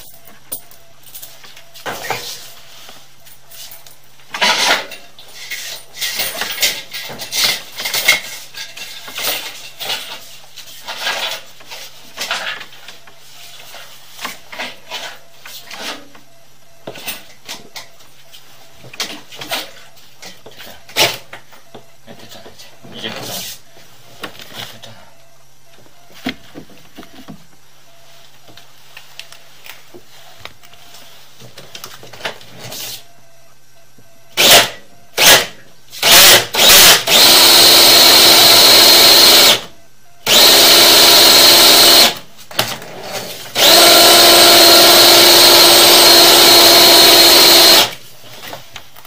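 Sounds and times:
drain-cleaning machine whining: 0:43.6 - 0:47.9.

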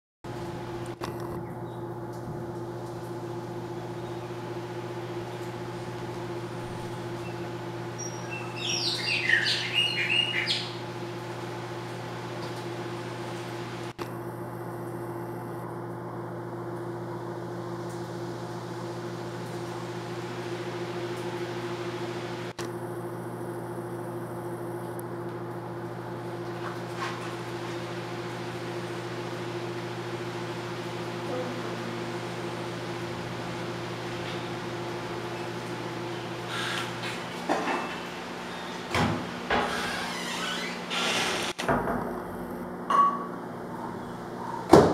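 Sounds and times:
mechanical hum: 0:00.3 - 0:44.9.

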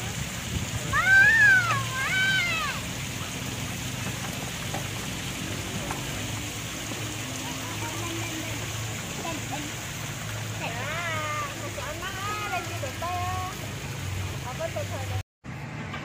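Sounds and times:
small child squealing cry: 0:00.9 - 0:02.8.

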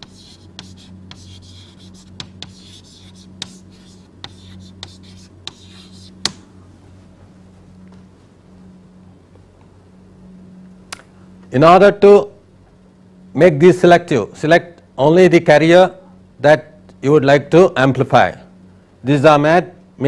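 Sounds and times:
scratchy writing strokes: 0:00.0 - 0:06.4
low electrical hum: 0:00.0 - 0:20.0
pen tapping on surface: 0:02.2 - 0:02.6.

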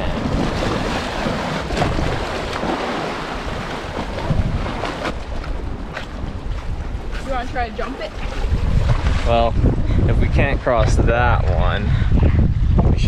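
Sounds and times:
waves splashing against seawall: 0:00.0 - 0:09.5
wind on microphone: 0:00.0 - 0:13.0.

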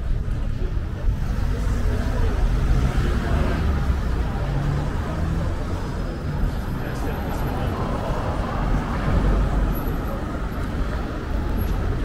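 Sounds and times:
low traffic rumble: 0:00.0 - 0:12.0
cars passing: 0:00.6 - 0:12.0.

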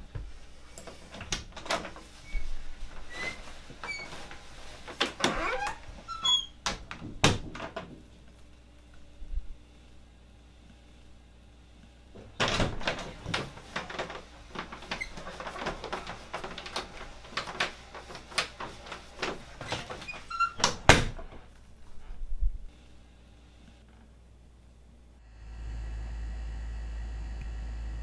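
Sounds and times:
cloth rustling: 0:01.8 - 0:06.2, 0:13.0 - 0:20.5
door shutting with knocks: 0:06.6 - 0:08.1, 0:12.2 - 0:17.7, 0:18.5 - 0:21.4
door opening: 0:12.2 - 0:21.5.

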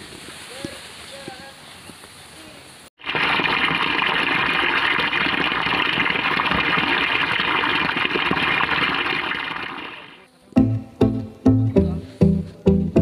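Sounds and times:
water splashing into pool: 0:03.0 - 0:10.3
plucked string music: 0:10.6 - 0:13.0.

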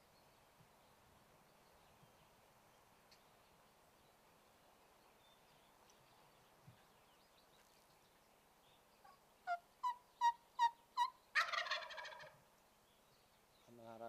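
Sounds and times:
wild turkey gobbling: 0:09.0 - 0:12.4
turkey yelps: 0:09.5 - 0:12.4.

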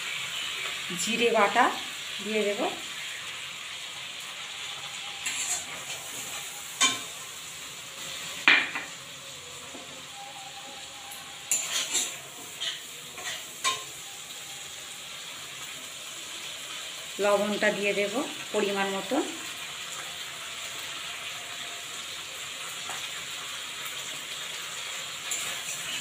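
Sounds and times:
paste sizzling in hot oil: 0:00.0 - 0:26.0
spatula scraping pan: 0:05.2 - 0:07.2, 0:11.3 - 0:14.0, 0:25.2 - 0:26.0
spatula clinking on pan: 0:11.5 - 0:13.9.

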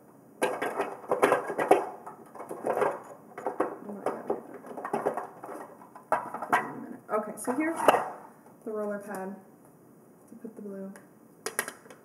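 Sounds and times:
plastic pieces clattering in drawer: 0:00.4 - 0:06.8.

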